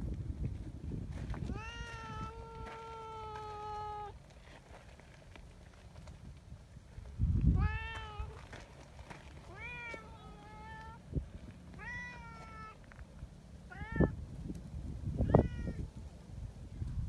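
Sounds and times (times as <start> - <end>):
cat meowing: 1.5 - 4.2, 7.5 - 8.4, 9.5 - 11.0, 11.8 - 12.8, 13.7 - 14.2, 15.2 - 15.9.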